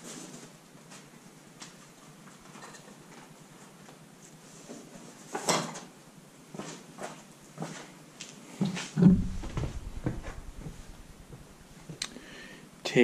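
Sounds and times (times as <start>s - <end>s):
heavy thump: 9.0s - 12.0s
short low rumble: 9.0s - 12.0s.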